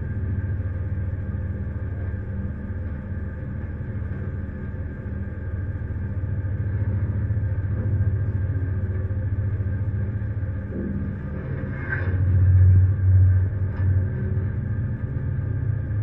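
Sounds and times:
ship engine rumbling: 9.0s - 16.0s.

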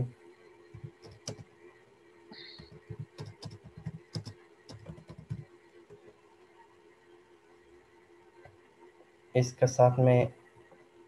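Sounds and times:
faint steady hum: 0.0s - 11.0s
keyboard typing: 0.8s - 1.5s, 2.4s - 6.0s.

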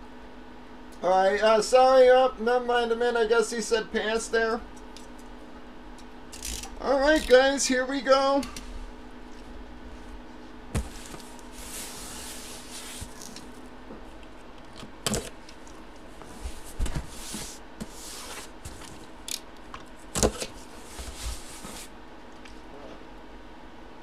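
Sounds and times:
cardboard box knocks: 10.7s - 11.2s.

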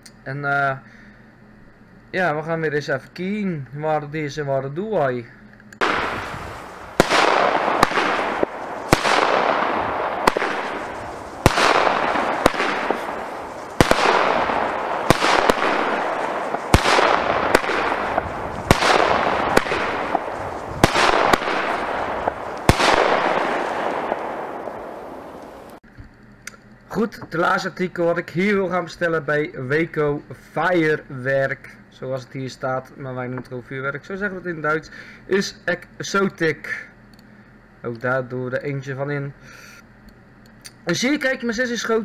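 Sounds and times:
firework hiss: 5.8s - 25.8s
firework shots: 5.8s - 25.8s.

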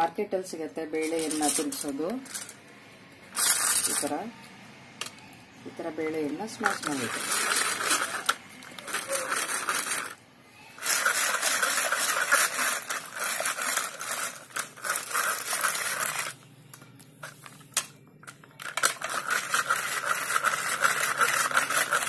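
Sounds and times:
metal blades scraping in a pot: 10.8s - 16.4s, 18.8s - 22.0s.

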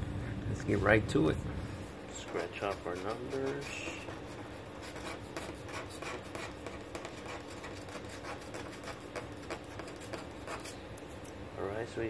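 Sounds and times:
scratch-off ticket being scraped: 2.1s - 11.2s.

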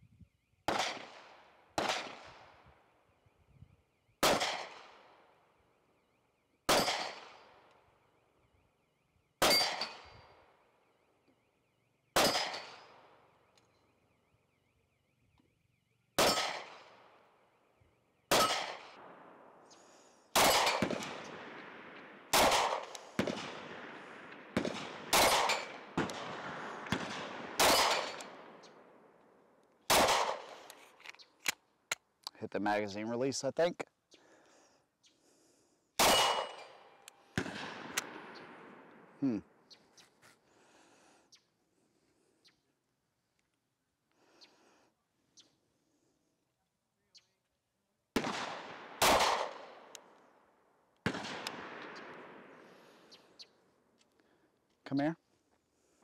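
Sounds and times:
pistol shots with echo: 0.7s - 2.6s, 4.2s - 5.3s, 6.6s - 7.7s, 9.4s - 10.5s, 12.1s - 13.2s, 16.2s - 17.2s, 18.3s - 19.7s, 20.3s - 29.2s, 29.9s - 30.7s, 36.0s - 39.2s, 48.1s - 50.1s, 51.0s - 52.7s.

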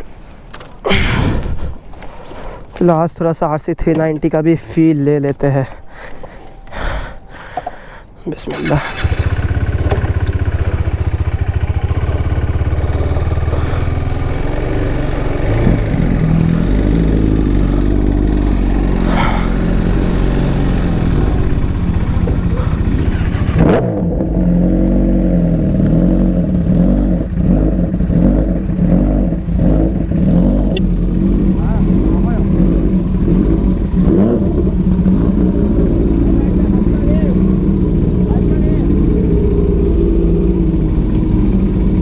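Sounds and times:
motorcycle engine revving: 8.5s - 42.0s.

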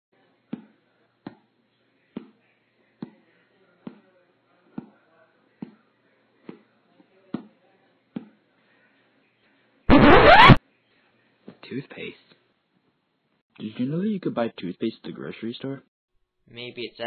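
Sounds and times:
cartoon footsteps: 9.9s - 10.6s.

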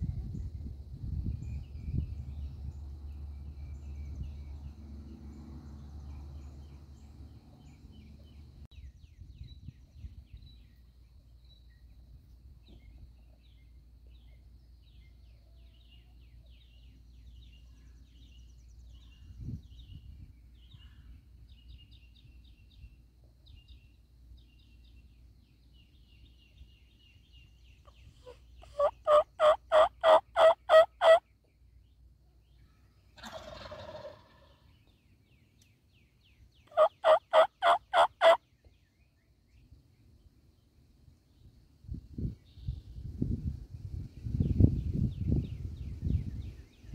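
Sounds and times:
small birds chirping: 0.0s - 46.9s
raspy turkey call: 28.2s - 31.2s, 36.7s - 38.4s
turkey yelping: 28.6s - 31.2s, 36.7s - 38.4s.

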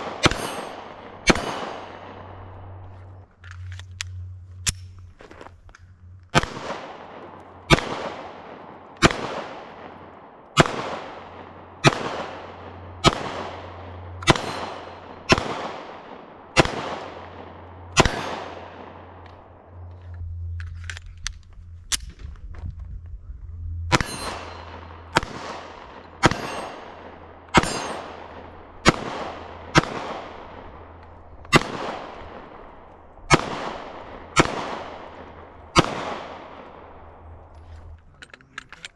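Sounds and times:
pistol shots with echo: 0.0s - 2.8s, 6.3s - 19.5s, 23.9s - 37.4s.

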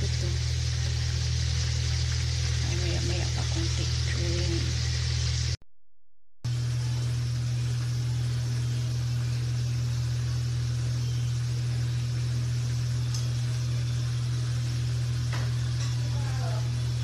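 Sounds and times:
low machine hum: 0.0s - 5.6s, 6.5s - 17.0s.

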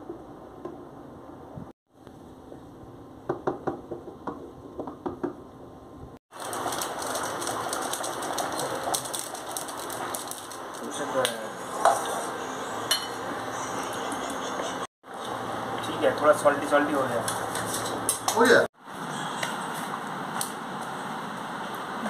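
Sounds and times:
spice sachet crinkling: 6.4s - 11.0s.

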